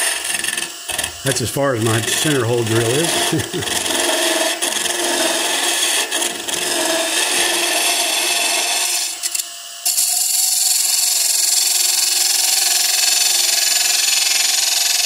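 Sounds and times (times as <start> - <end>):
lathe tool scraping wood: 0.0 - 9.3.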